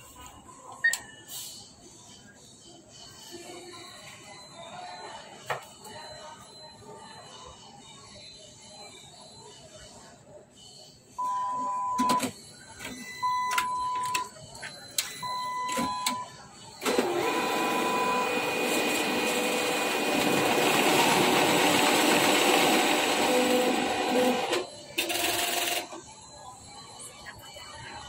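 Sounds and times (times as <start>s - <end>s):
machine beeping: 11.2s - 28.0s
banknote counting mechanism running: 16.8s - 26.0s.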